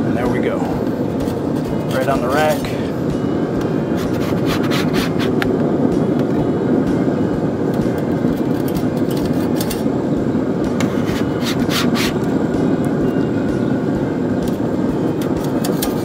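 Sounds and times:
steady rumbling noise: 0.0 - 16.0
metal spatula scraping wire grate: 10.8 - 12.2, 15.3 - 16.0.

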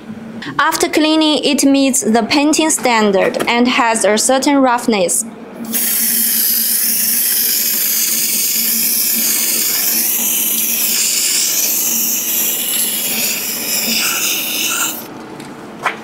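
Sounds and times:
spray-paint can hissing: 5.7 - 15.1.

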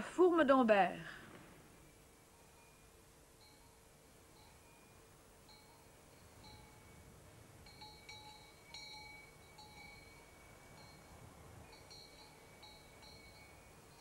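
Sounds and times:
cowbells clinking: 4.4 - 7.0, 7.6 - 14.0.

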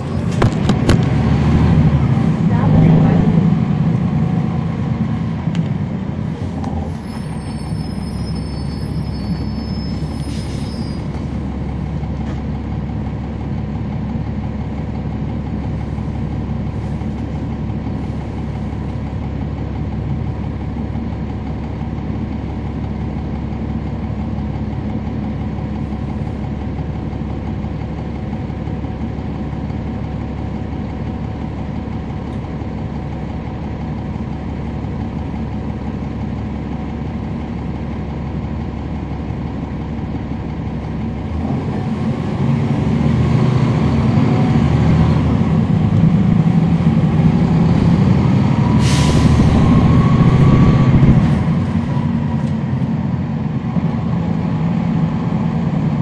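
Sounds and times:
bus diesel engine idling: 0.0 - 56.0
engine revving up: 0.8 - 4.9, 41.4 - 51.7.

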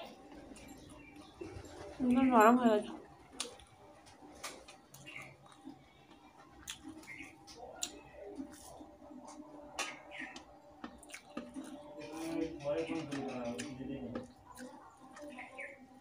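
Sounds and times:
person chewing: 3.4 - 3.7, 4.4 - 12.4, 13.6 - 15.6
fingers mixing rice on a plate: 3.4 - 15.8.

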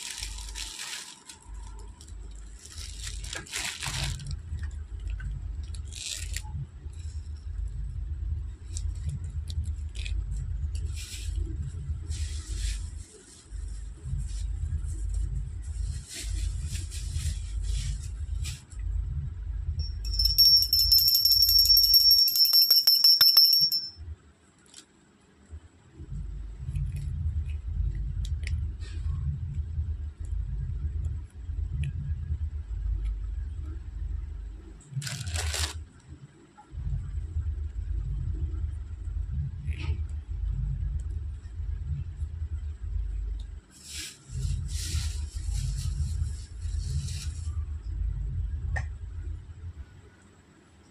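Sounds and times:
plastic packaging crinkling: 0.0 - 4.7, 35.0 - 35.9
low handling rumble: 1.4 - 22.3, 25.6 - 35.0, 36.7 - 50.0
bangles jingling and clinking: 19.8 - 24.0.

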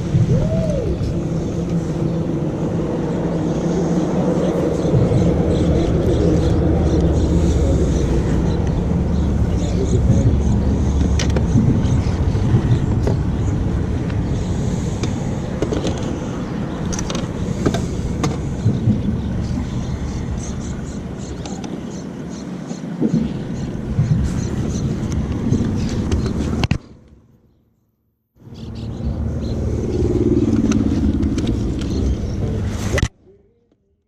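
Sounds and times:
low rumble of road traffic: 0.0 - 34.0.

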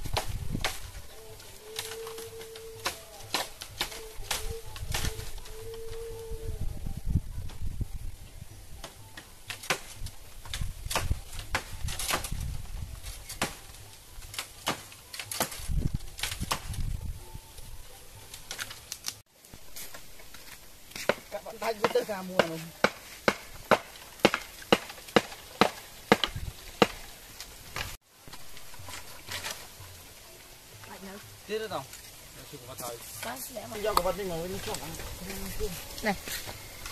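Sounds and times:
blade chopping bamboo: 1.6 - 5.2, 8.8 - 12.4, 13.0 - 16.8, 20.9 - 27.2.

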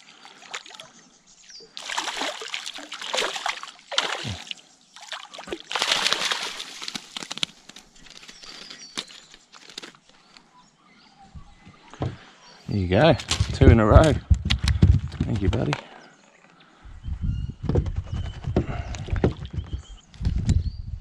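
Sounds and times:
fish splashing in water: 1.7 - 7.5.

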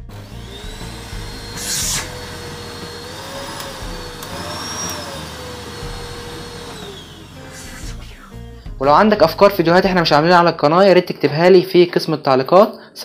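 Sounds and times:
vacuum cleaner motor whine: 0.0 - 8.6
short hiss of air: 7.4 - 8.6.

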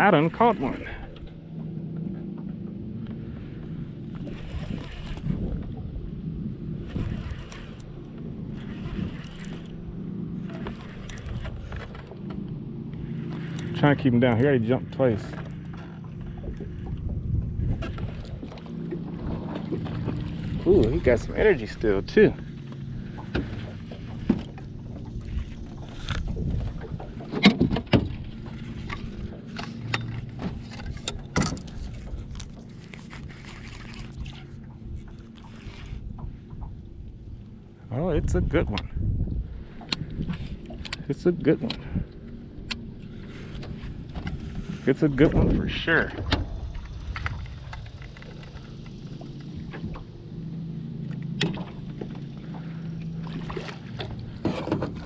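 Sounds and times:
low steady drone: 0.0 - 55.0
electric motor hum: 0.3 - 27.3
knocks and clatter on boat deck: 6.8 - 36.9, 38.2 - 50.2, 51.0 - 55.0.

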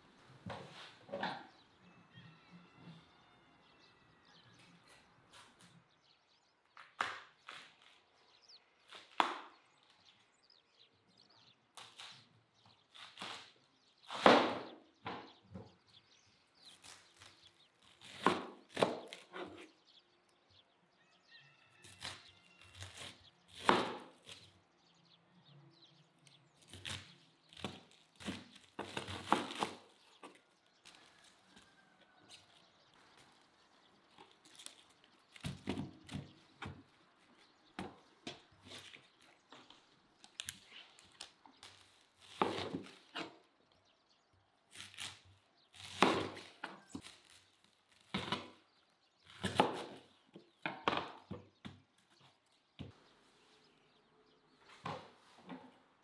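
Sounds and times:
knife chopping cabbage on board: 18.0 - 19.6, 22.8 - 24.4, 27.6 - 29.8, 42.3 - 43.3.

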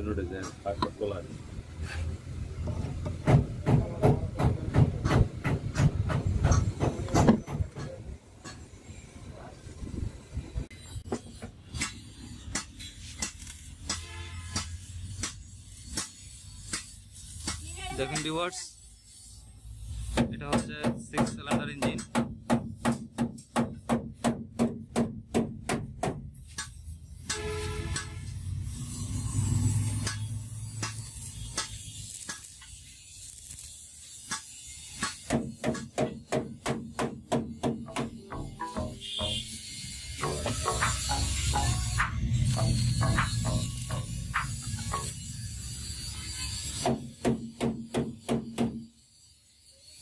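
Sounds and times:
sharp knocks: 2.6 - 8.6, 35.0 - 39.5, 40.2 - 45.1.

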